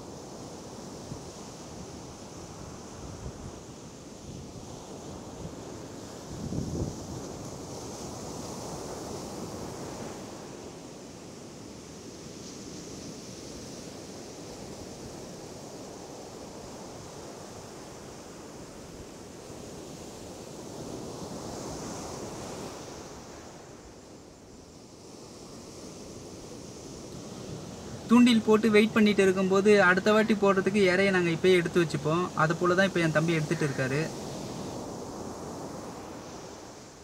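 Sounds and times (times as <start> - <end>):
ocean surf breaking: 18.4 - 37.0.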